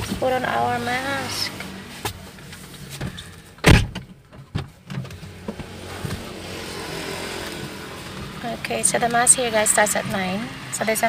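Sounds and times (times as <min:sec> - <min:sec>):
loud thump: 0:03.0 - 0:04.7.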